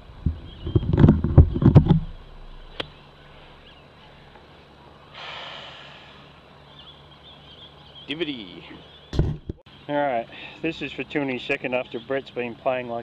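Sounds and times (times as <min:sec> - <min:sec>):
sharp click: 0:02.7 - 0:03.0.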